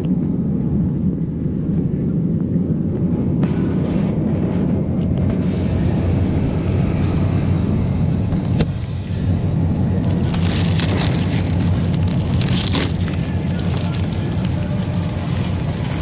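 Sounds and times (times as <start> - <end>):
shopping cart rolling: 10.0 - 16.0.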